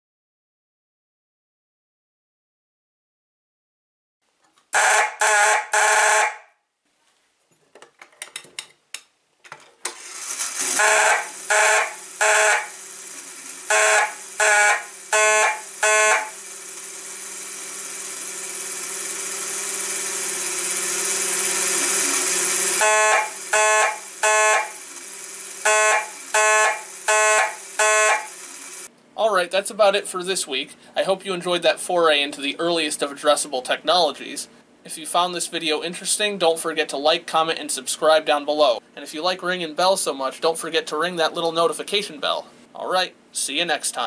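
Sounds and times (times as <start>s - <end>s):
fire alarm horn blasts: 4.7s - 6.5s, 10.7s - 12.8s, 13.6s - 16.4s, 22.8s - 24.8s, 25.6s - 28.3s.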